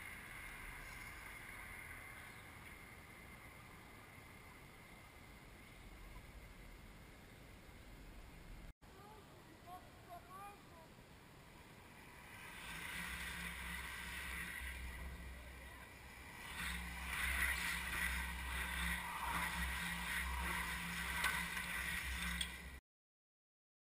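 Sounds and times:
bicycles whooshing past: 0.0s - 6.9s, 11.5s - 22.8s.

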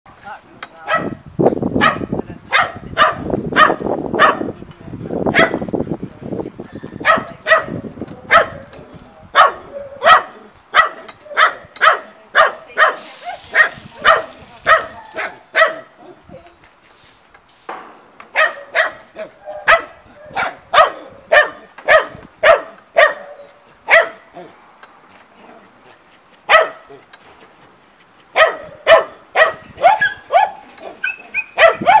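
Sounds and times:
dog barking: 0.9s - 1.2s, 1.8s - 4.5s, 5.3s - 5.6s, 7.0s - 8.6s, 9.4s - 16.1s, 18.3s - 24.3s, 26.5s - 26.9s, 28.4s - 30.6s, 31.4s - 32.0s.

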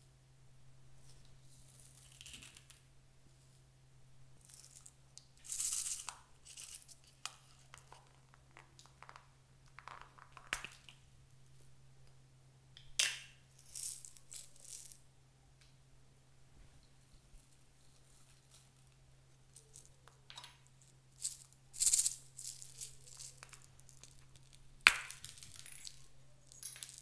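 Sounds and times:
sequins rattling into a palm: 4.5s - 7.0s, 21.2s - 27.0s.

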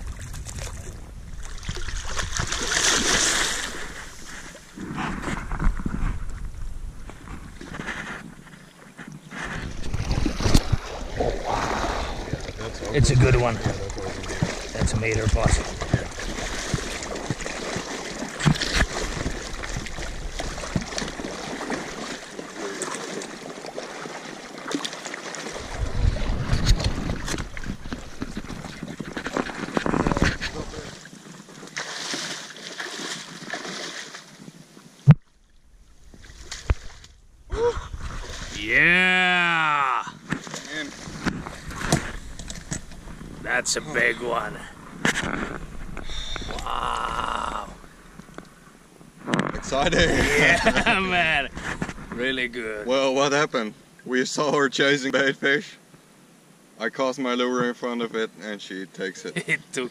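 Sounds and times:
wind rumbling on microphone: 0.0s - 2.7s, 3.9s - 8.6s, 9.2s - 17.5s, 25.6s - 31.0s, 35.8s - 38.8s, 41.0s - 52.6s
fish thrashing water splashes: 0.0s - 5.2s, 9.7s - 34.3s.

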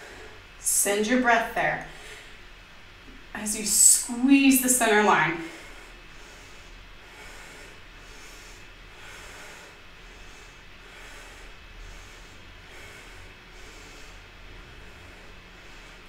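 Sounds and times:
faint room hiss: 0.0s - 16.0s
slow breathing through nose: 5.4s - 16.0s.

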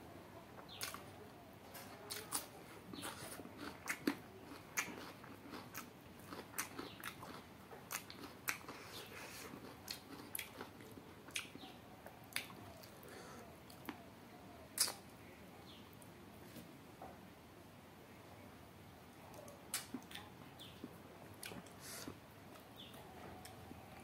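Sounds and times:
wet chewing: 1.8s - 14.0s, 14.8s - 15.0s, 19.3s - 22.7s.

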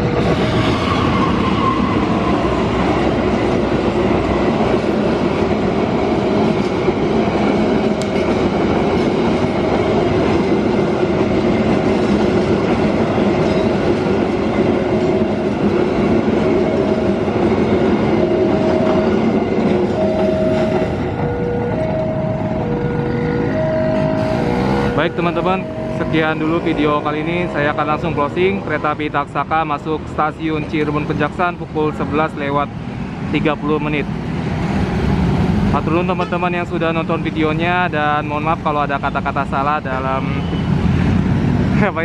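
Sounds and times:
locomotive passing: 0.0s - 42.0s
train wheels rumbling on rails: 0.0s - 42.0s
level crossing warning chime: 19.9s - 26.7s.

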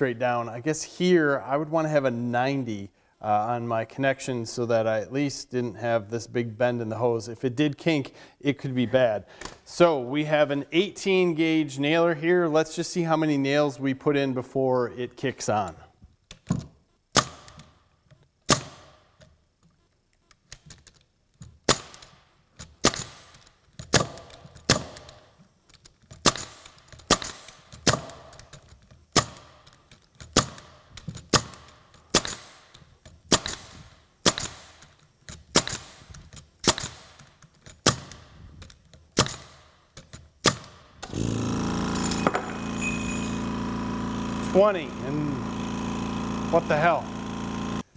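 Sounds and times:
nail gun firing: 17.1s - 17.8s, 18.5s - 19.1s, 21.6s - 25.3s, 26.0s - 43.3s
air compressor motor running: 40.5s - 47.9s.

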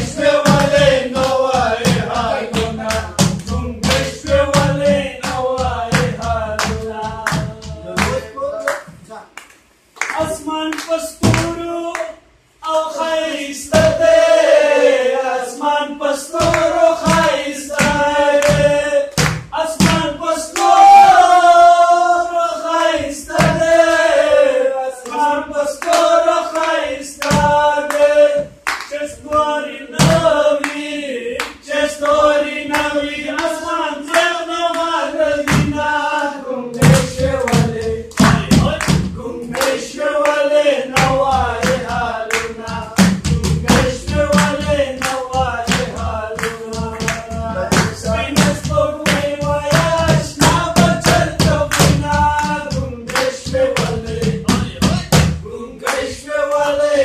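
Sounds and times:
men singing folk song: 0.0s - 8.3s, 10.2s - 57.0s
hand claps: 0.0s - 12.2s, 16.3s - 21.5s, 23.3s - 24.1s, 25.0s - 35.9s, 36.7s - 57.0s.

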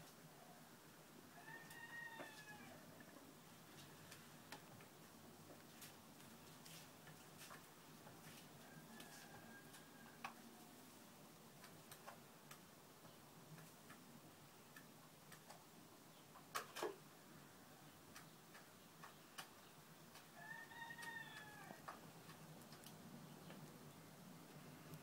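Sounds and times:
faint irregular clicks: 2.9s - 8.4s, 9.0s - 10.6s, 11.3s - 15.7s, 18.0s - 20.3s, 21.0s - 23.9s.

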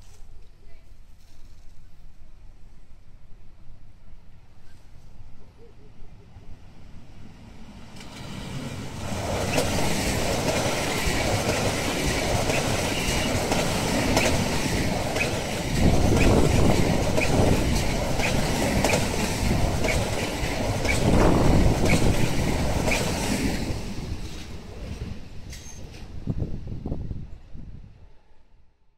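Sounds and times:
train passing at speed: 2.3s - 28.8s
wheel clicks on rail: 9.4s - 23.1s.

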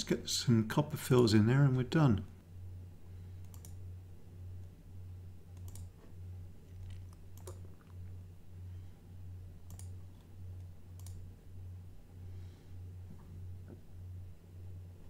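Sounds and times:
low wavering hum: 2.3s - 15.0s
computer mouse clicks: 3.4s - 3.8s, 5.5s - 6.0s, 6.7s - 8.0s, 9.6s - 11.2s.

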